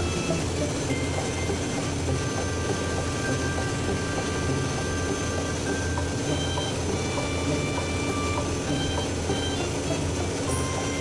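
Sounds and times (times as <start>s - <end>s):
boat engine drone: 0.0s - 11.0s
faint music of held notes: 0.0s - 11.0s.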